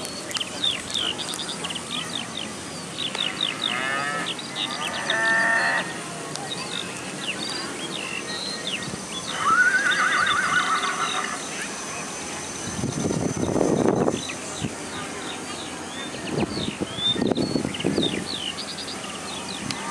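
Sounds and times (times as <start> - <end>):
small birds chirping: 0.0 - 19.9
horse whinnying: 9.4 - 11.4.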